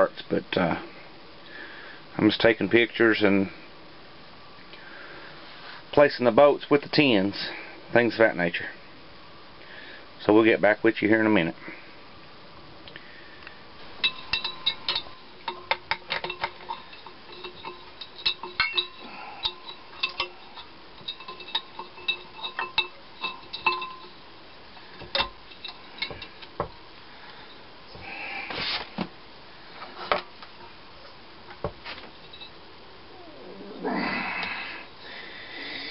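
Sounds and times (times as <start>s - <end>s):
metal tools clinking: 14.0s - 24.2s, 24.9s - 26.5s, 32.2s - 32.6s
short scrape: 28.4s - 29.0s.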